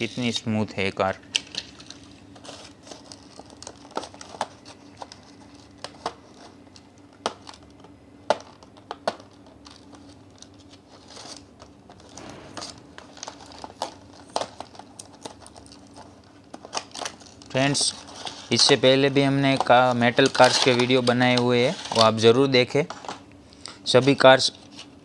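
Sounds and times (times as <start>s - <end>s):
cardboard and plastic crinkling: 1.4s - 23.2s.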